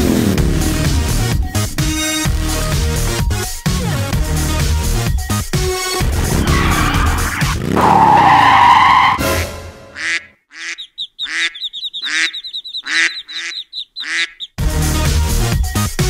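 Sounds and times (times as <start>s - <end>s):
loud music: 0.0s - 7.8s, 9.1s - 10.0s, 14.6s - 16.0s
screech: 6.0s - 9.5s
cartoon duck quacks: 9.3s - 14.5s.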